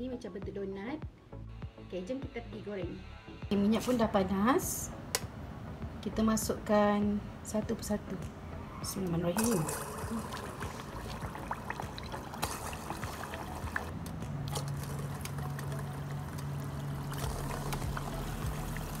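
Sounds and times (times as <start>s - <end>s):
dough frying in hot oil: 9.4s - 13.9s, 14.5s - 19.0s
oil popping: 9.4s - 19.0s.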